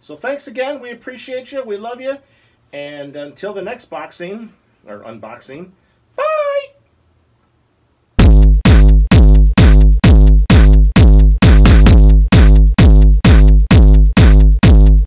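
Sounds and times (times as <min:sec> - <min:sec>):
drum machine beat with pitch sweeps: 0:08.2 - 0:15.0
loud electronic music: 0:08.2 - 0:15.0.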